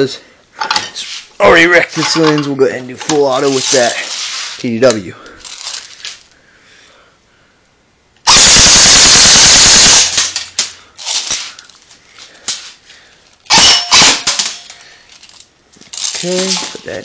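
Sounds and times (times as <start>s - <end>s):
airsoft gun full-auto burst: 8.2s - 10.5s, 13.5s - 14.6s.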